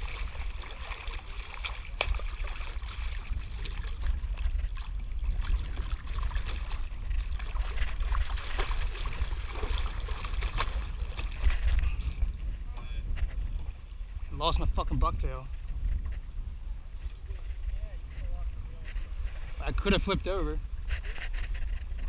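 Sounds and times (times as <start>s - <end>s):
water splashing: 0.0s - 12.2s.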